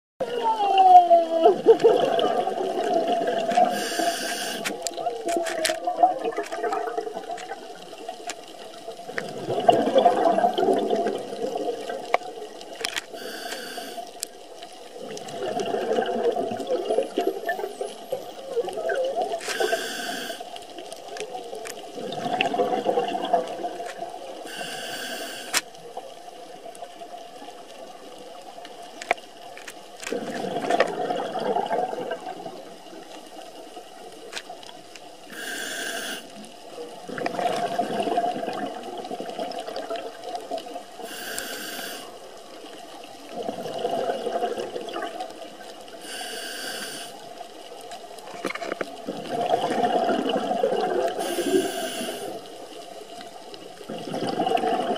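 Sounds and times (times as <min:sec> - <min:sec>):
gurgling exhaled bubbles: 0:00.2 - 0:14.1, 0:14.8 - 0:24.7, 0:30.0 - 0:33.1, 0:35.4 - 0:54.9
faint clicks: 0:03.4 - 0:09.3, 0:11.9 - 0:15.3, 0:17.8 - 0:21.9, 0:23.7 - 0:25.8, 0:33.0 - 0:36.6
air hissing through regulator: 0:03.7 - 0:04.8, 0:13.1 - 0:14.0, 0:19.5 - 0:20.4, 0:24.5 - 0:25.6, 0:35.3 - 0:36.3, 0:41.0 - 0:42.1, 0:46.0 - 0:47.2, 0:51.2 - 0:52.4.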